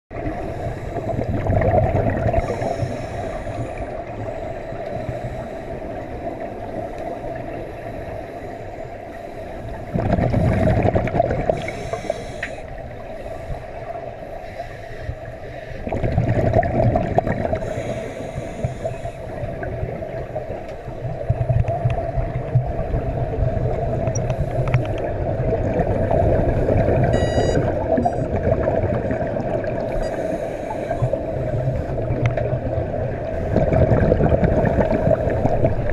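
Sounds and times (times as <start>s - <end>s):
regulator bubbles gurgling: 0.1s - 7.9s, 9.6s - 14.2s, 15.2s - 35.9s
steady hum: 25.8s - 28.6s.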